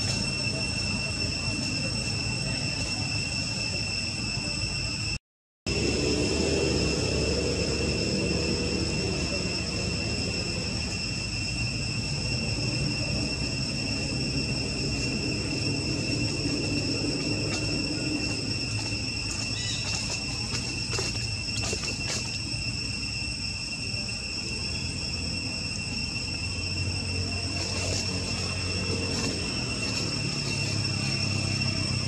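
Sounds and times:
high-pitched insect chorus: 0.0s - 32.0s
low rumble: 0.0s - 32.0s.

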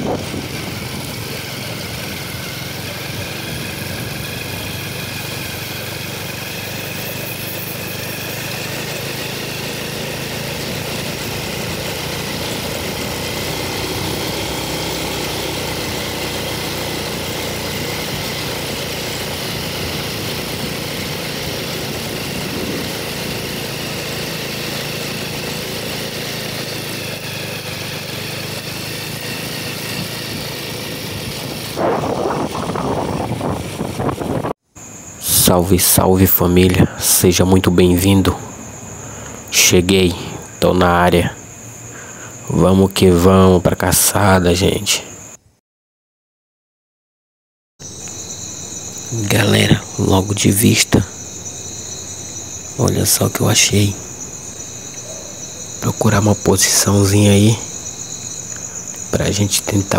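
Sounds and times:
mechanical drone: 0.0s - 35.5s, 47.8s - 59.9s.

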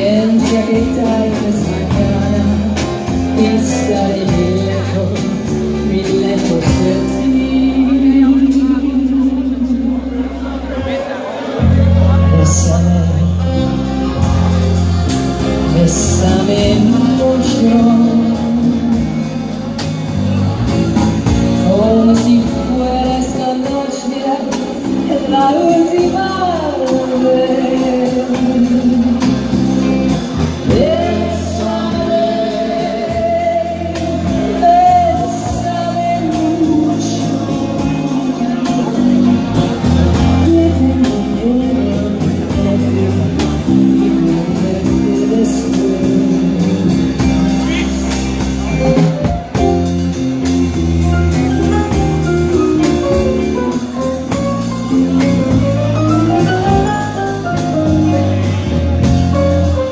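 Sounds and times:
woman singing into a microphone: 0.0s - 10.4s, 11.7s - 13.7s, 15.6s - 19.5s, 21.6s - 48.2s
live band playing a bolero: 0.0s - 59.9s.

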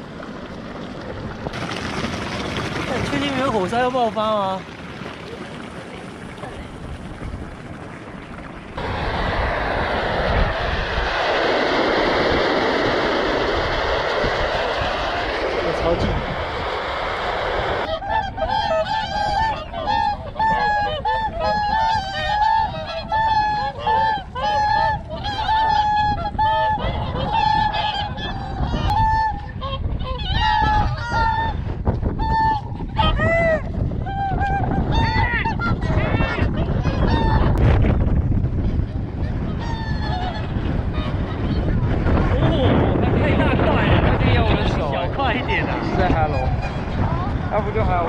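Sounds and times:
steam hissing from fumarole: 8.8s - 17.9s
swans honking: 17.8s - 31.5s.

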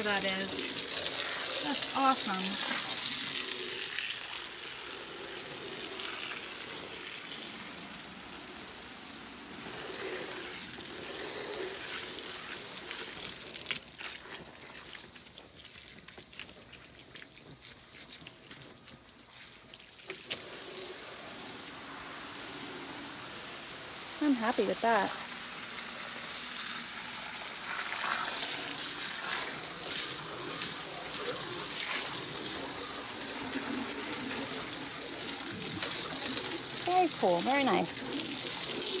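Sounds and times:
water spraying onto deck boards: 0.0s - 39.0s
water dripping: 29.3s - 39.0s.

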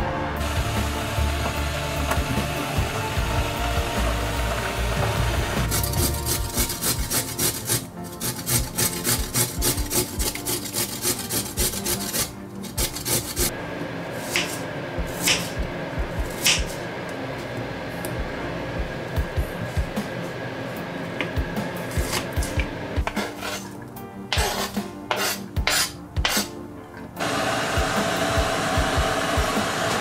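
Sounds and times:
carrot grating on metal grater: 4.4s - 13.5s, 23.1s - 26.5s
knife cutting onion: 5.7s - 13.5s, 14.2s - 14.6s, 15.2s - 15.6s, 21.9s - 26.5s.

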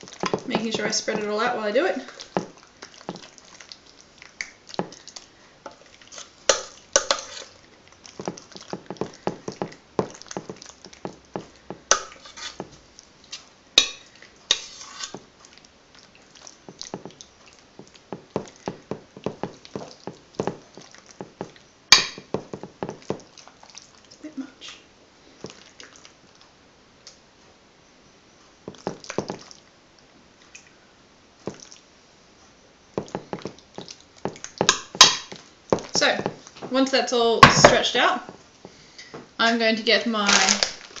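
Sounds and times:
metal utensil scraping a pot: 7.0s - 7.6s, 13.8s - 15.2s.

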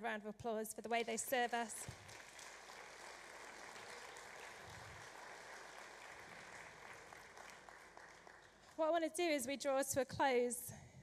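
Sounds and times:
congregation applauding: 1.8s - 8.8s.

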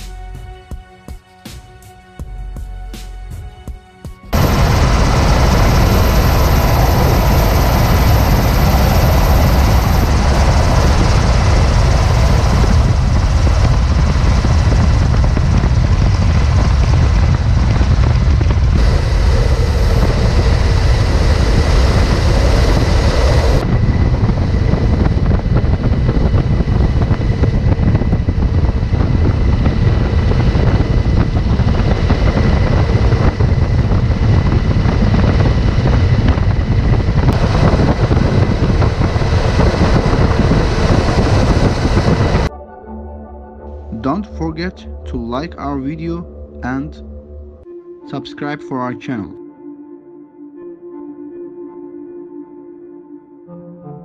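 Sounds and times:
aircraft engines roaring: 4.3s - 42.5s.

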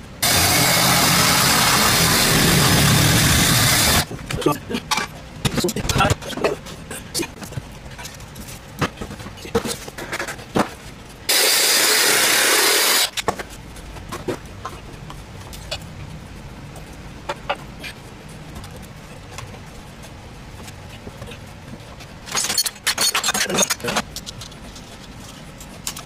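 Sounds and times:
loud even hiss: 11.3s - 13.1s.

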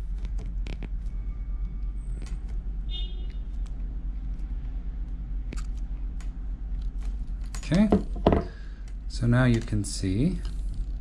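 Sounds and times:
wire clicking and ticking: 5.0s - 7.9s, 8.8s - 10.7s.

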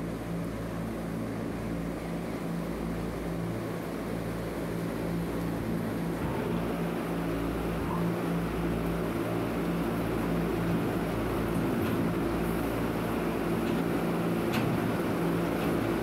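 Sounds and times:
barn machinery humming: 5.4s - 16.0s.

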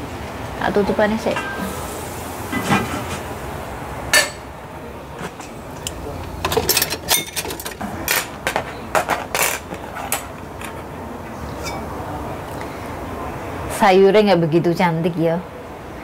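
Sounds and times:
dishes and cutlery clinking: 5.2s - 10.9s, 11.5s - 11.9s.

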